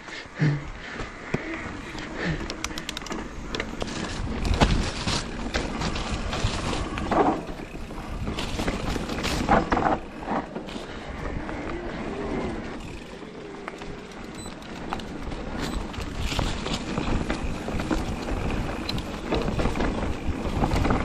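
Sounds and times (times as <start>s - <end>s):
bike tyres rolling over dirt: 0.1s - 21.0s
bike rattling and clicking: 0.4s - 21.0s
heavy bike jolt: 2.4s - 11.0s.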